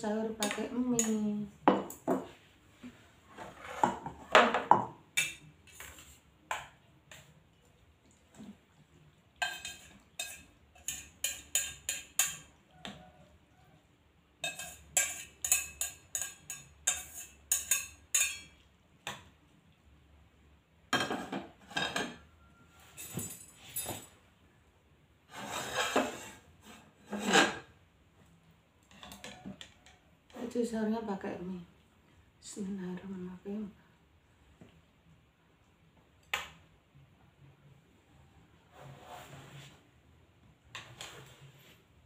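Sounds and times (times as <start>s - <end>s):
chopsticks clinking on saucepan: 9.4s - 12.5s, 14.4s - 18.6s.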